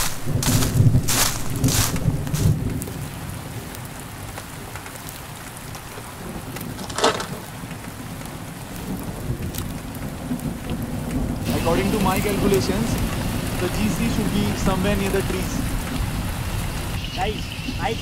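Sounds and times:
rustling burst: 0.0 - 2.7
rain-like hiss: 0.0 - 18.0.

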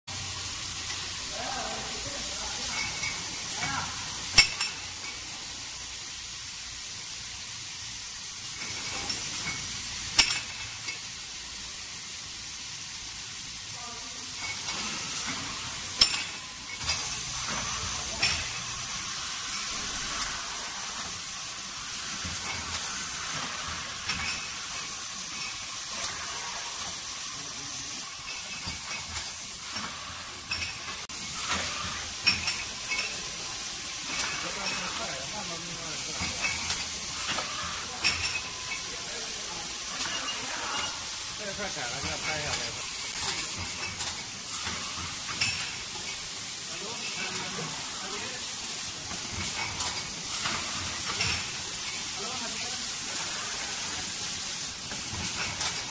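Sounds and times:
machine hissing: 0.1 - 55.9
mechanical clacks and clinks: 8.4 - 11.2, 14.4 - 21.3, 21.9 - 27.1, 28.0 - 35.4, 36.1 - 39.0, 41.6 - 47.8, 49.0 - 52.2, 53.0 - 55.9.

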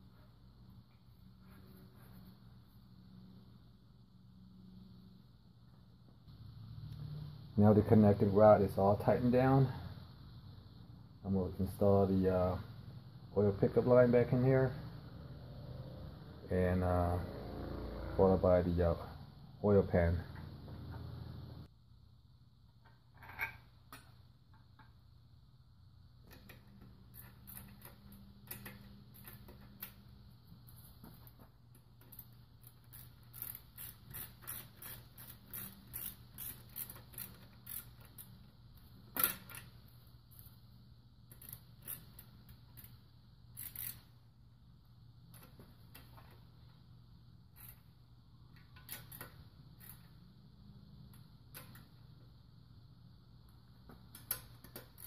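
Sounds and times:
socket ratchet clicking: 32.0 - 38.4, 43.6 - 44.1, 48.6 - 50.2.

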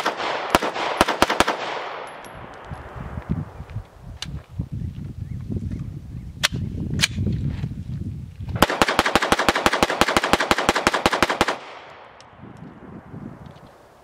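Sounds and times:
rapid gunfire: 0.0 - 2.0, 8.6 - 11.8.

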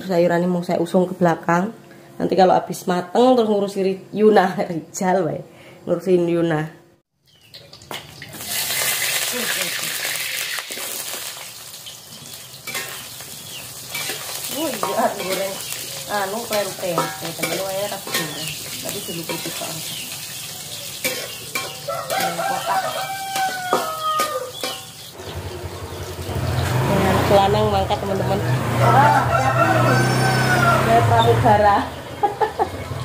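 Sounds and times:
food sizzling in hot oil: 7.3 - 25.2
chickens clucking: 11.9 - 33.0
spatula scraping a pan: 12.6 - 22.6, 23.3 - 25.0
rooster crowing: 21.7 - 24.9, 28.5 - 31.2.

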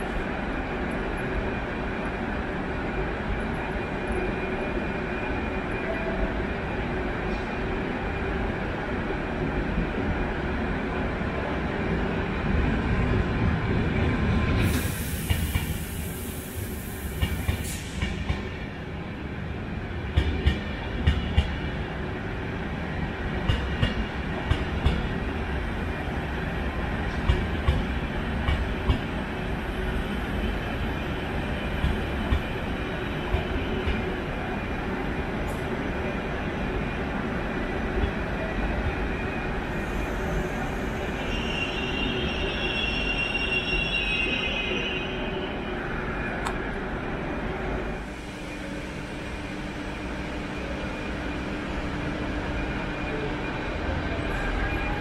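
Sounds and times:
train rumbling along platform: 0.0 - 55.0
burst of hiss: 14.6 - 18.0.

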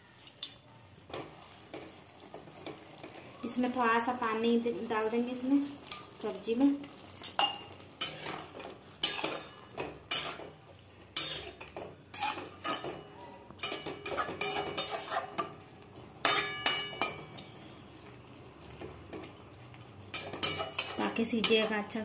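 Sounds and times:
metal spatula scraping metal pan: 8.0 - 15.6, 16.2 - 17.5, 20.1 - 22.0.

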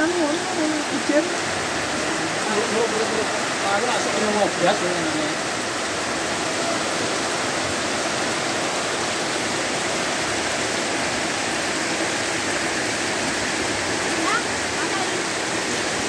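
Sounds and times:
heavy rain splashing into puddles: 0.0 - 16.0.

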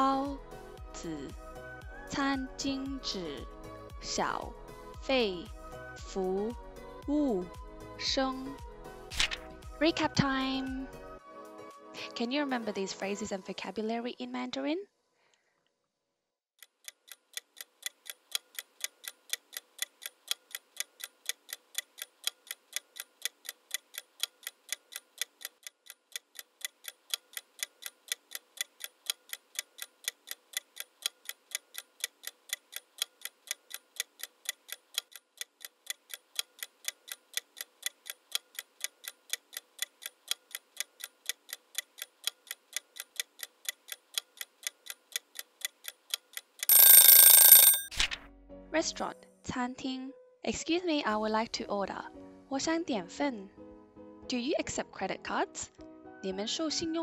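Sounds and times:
clock ticking: 16.6 - 47.9.

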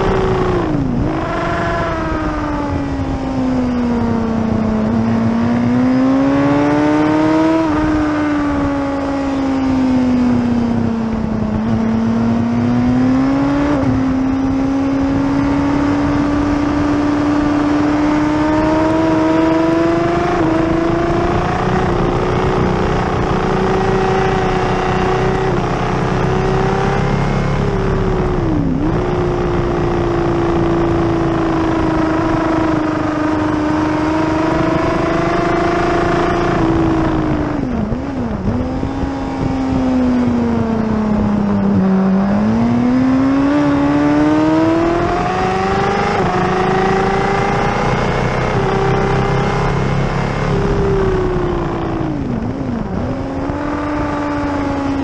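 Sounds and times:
wind noise: 0.0 - 55.0
sport bike engine revving: 11.5 - 55.0.

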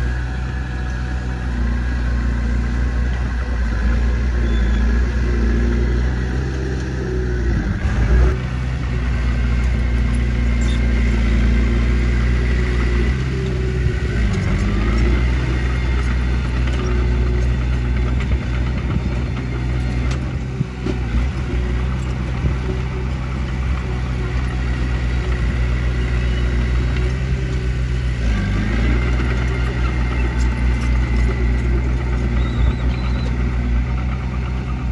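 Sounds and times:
bulldozer diesel engine: 0.0 - 34.9.

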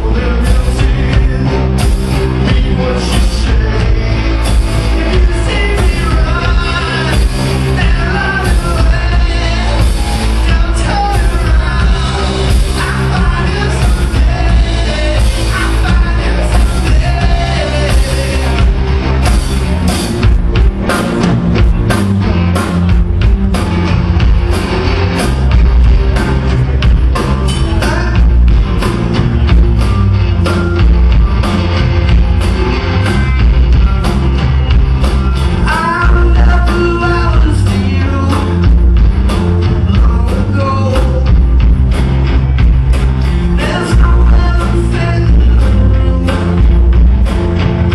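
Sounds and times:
person singing: 0.0 - 18.9, 35.6 - 38.9, 43.4 - 46.8
bass guitar: 0.0 - 47.9
drum kit: 0.0 - 47.9
electric guitars: 0.0 - 47.9.

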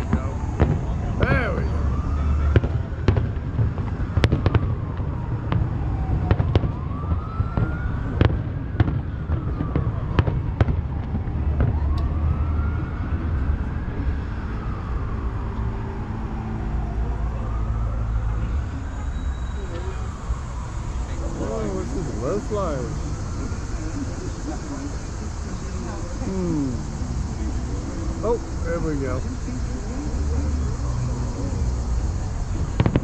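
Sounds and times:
fireworks bangs: 0.0 - 12.3, 32.5 - 33.0
siren wailing: 0.0 - 24.4.

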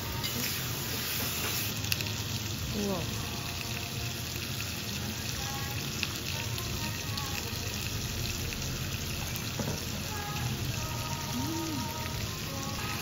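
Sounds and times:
beef sizzling in a hot pan: 0.0 - 13.0.

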